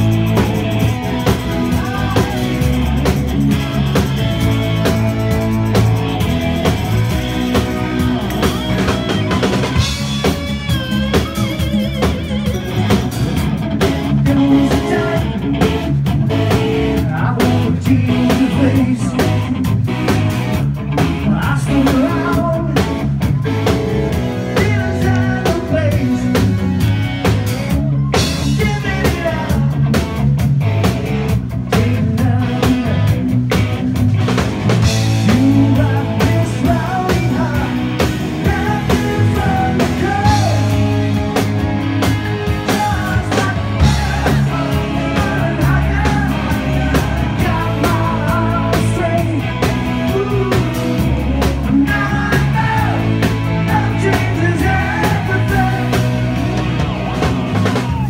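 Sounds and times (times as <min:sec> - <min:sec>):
drum kit: 0:00.0 - 0:58.0
electric bass: 0:00.0 - 0:58.0
electric guitar: 0:00.0 - 0:58.0
man singing: 0:00.8 - 0:03.2, 0:14.0 - 0:15.9, 0:16.5 - 0:19.8, 0:21.2 - 0:23.2, 0:24.2 - 0:26.8, 0:27.8 - 0:30.0, 0:31.6 - 0:33.8, 0:35.1 - 0:41.1, 0:42.3 - 0:56.3.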